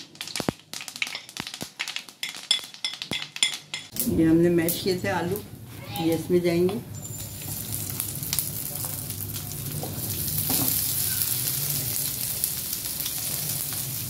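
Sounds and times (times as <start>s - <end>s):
oil sizzling in a frying pan: 0.0s - 4.0s, 6.8s - 14.0s.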